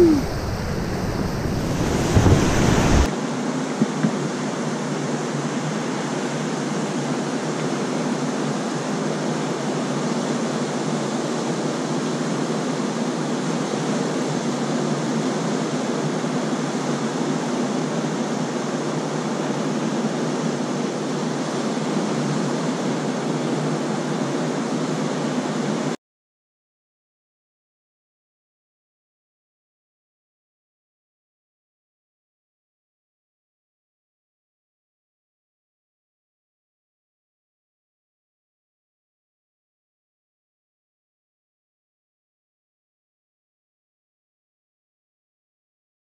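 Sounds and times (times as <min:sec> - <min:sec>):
river rapid rushing: 0:00.0 - 0:03.1
whitewater churning around canoe bow: 0:00.2 - 0:03.1.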